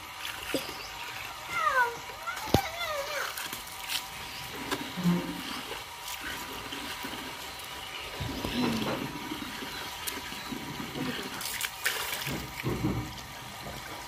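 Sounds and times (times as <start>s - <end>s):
hose water splashing into tub: 0.0s - 14.0s.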